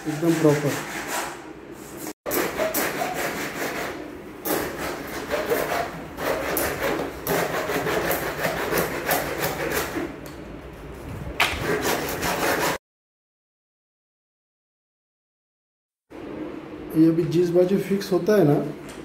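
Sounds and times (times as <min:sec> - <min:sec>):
hacksaw sawing plastic: 0:02.3 - 0:10.1, 0:11.4 - 0:12.8.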